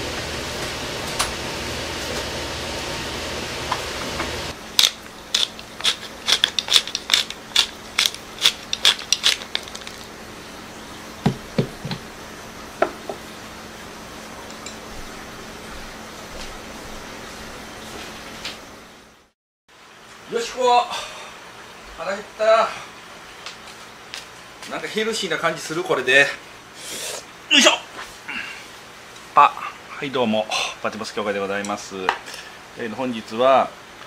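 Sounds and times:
pepper grinder clicking: 0:04.8 - 0:10.1
soft knocks: 0:11.2 - 0:12.1.

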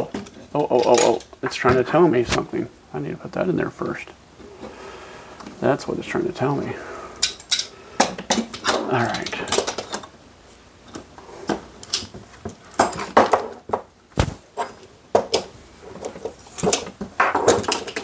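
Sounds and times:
clicks and clinks of metal parts: 0:07.2 - 0:10.1, 0:16.6 - 0:18.0.

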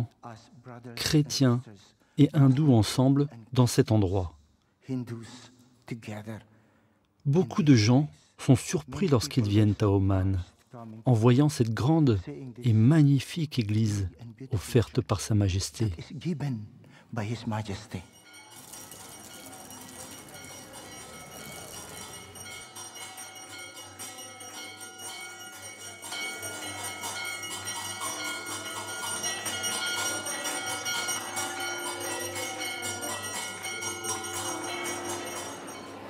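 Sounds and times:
temple bells ringing: 0:17.6 - 0:36.0.

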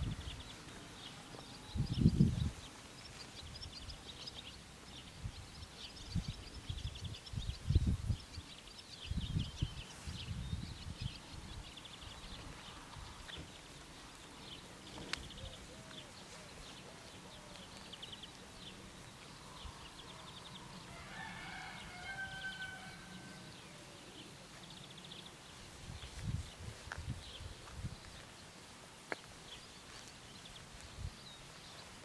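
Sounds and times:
small birds chirping: 0:00.0 - 0:32.0
rooster crowing: 0:20.8 - 0:23.6.

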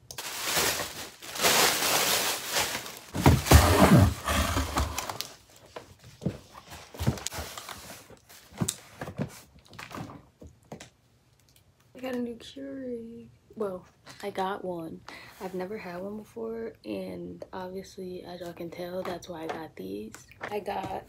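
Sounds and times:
cardboard rustling scrape: 0:00.2 - 0:10.1
box bumping and scraping: 0:03.1 - 0:05.2.

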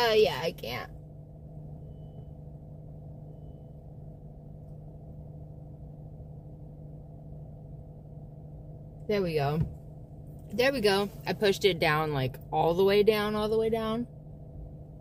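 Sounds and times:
car cabin low hum: 0:00.0 - 0:15.0.

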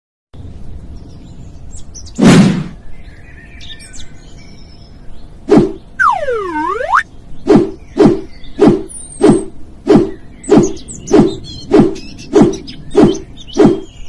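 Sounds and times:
birds chirping: 0:00.4 - 0:14.0
loud cartoon thump: 0:02.2 - 0:02.8.

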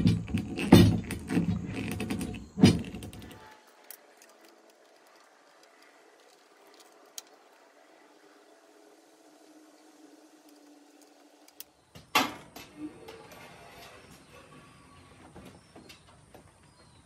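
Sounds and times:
metal rods rattling and knocking: 0:00.0 - 0:07.6
faint clicks: 0:03.2 - 0:08.4.

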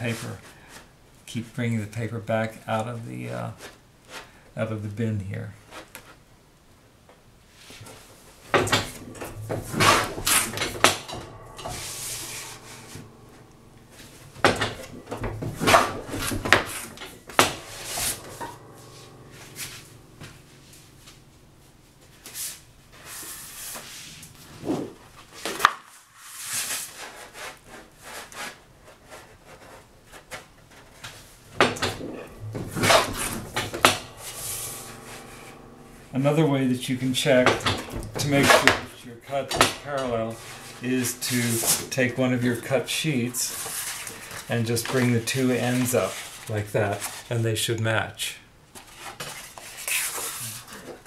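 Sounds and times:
board shear knocks and clatter: 0:08.5 - 0:21.3, 0:31.6 - 0:38.9, 0:39.5 - 0:45.1.

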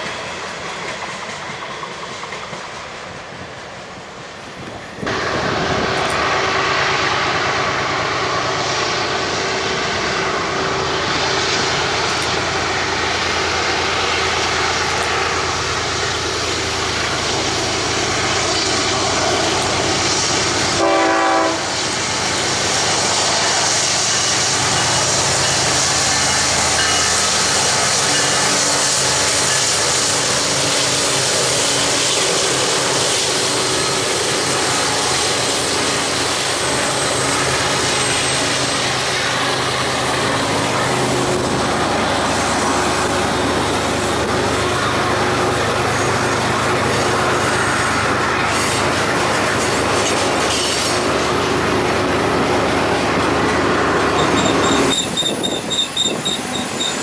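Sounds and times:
diesel locomotives running: 0:00.0 - 0:57.0
freight train rumble: 0:00.0 - 0:57.0
train wheel noise: 0:00.0 - 0:57.0
locomotive horn blast: 0:20.8 - 0:21.8.

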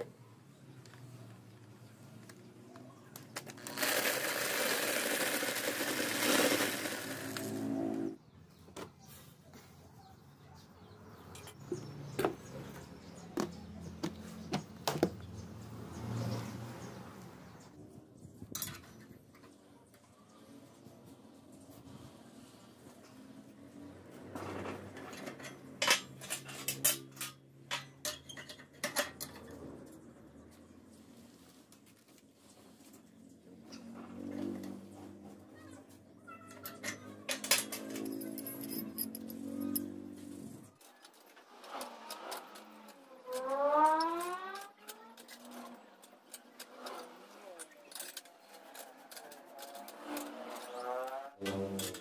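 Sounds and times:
drill stopping: 0:03.6 - 0:08.2.

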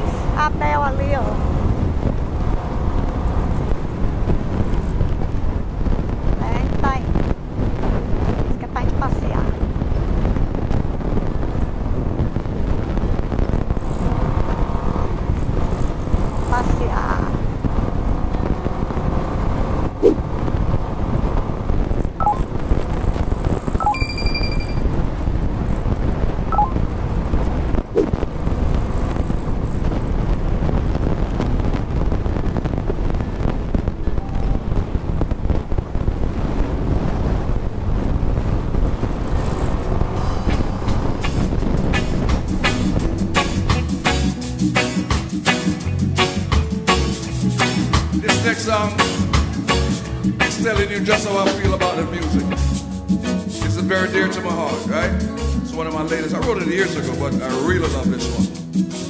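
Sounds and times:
wind buffeting microphone: 0:00.0 - 0:44.0
road noise: 0:00.0 - 0:59.0.

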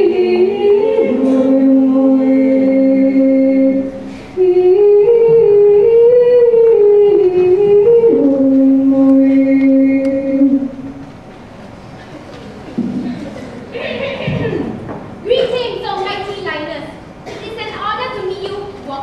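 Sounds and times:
woman singing into a microphone: 0:00.0 - 0:10.7.

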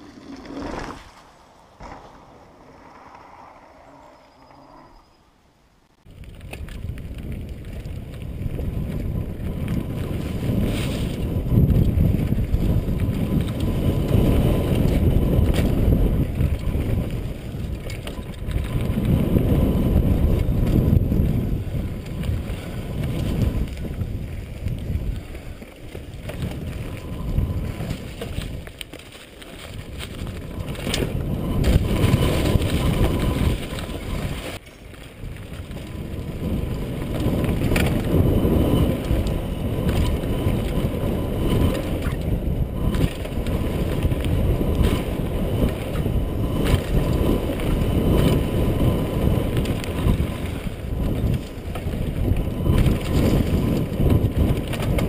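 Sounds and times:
mountain bike rumbling on dirt trail: 0:00.0 - 0:05.3, 0:06.0 - 0:55.0
wind rushing over microphone: 0:00.0 - 0:28.9, 0:29.6 - 0:55.0.

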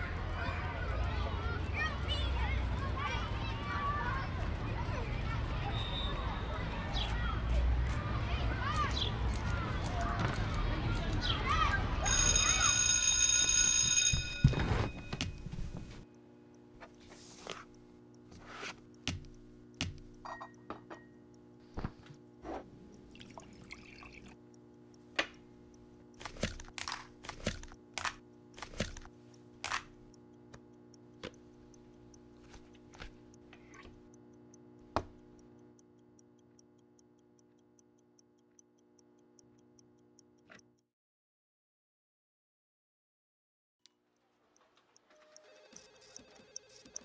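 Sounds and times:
steady low hum: 0:14.3 - 0:40.5
clock ticking: 0:16.1 - 0:23.5, 0:24.3 - 0:40.8, 0:43.9 - 0:47.0
dishes and utensils clicking: 0:20.2 - 0:21.2.

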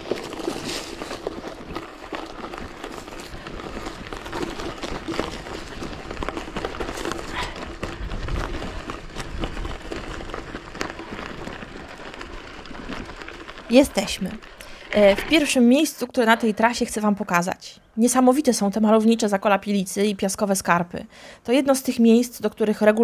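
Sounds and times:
bike clicking and rattling: 0:00.0 - 0:16.7
bike tyres on trail: 0:00.0 - 0:19.2.

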